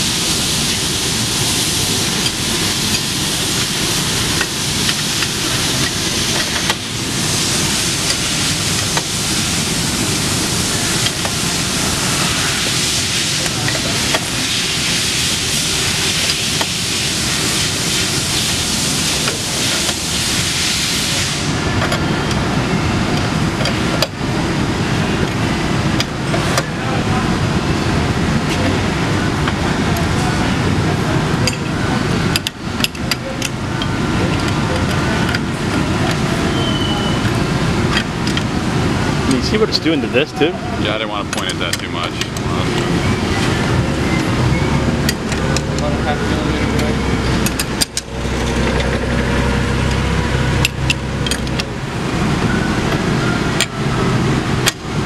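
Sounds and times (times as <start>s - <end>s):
loud hiss: 0.0s - 21.8s.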